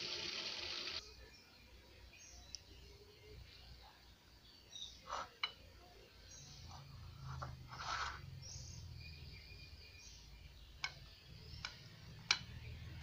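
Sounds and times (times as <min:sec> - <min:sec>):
birds chirping: 0:00.8 - 0:13.0
knife scraping through soft cake: 0:06.7 - 0:08.2.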